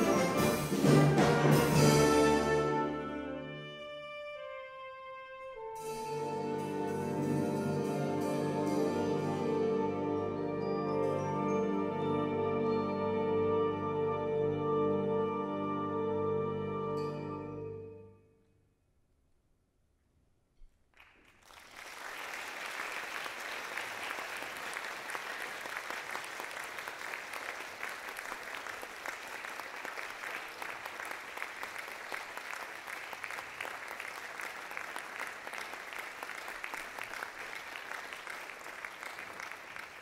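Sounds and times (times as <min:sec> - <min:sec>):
audience applause: 0:21.0 - 0:40.0.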